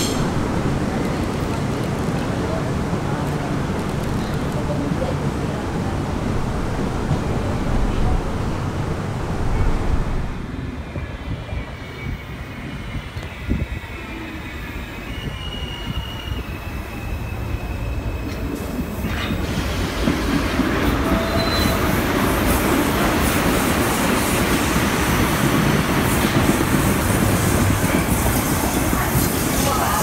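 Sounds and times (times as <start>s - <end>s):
subway train rumbling past: 0.0s - 30.0s
high wheel squeals: 11.4s - 18.5s.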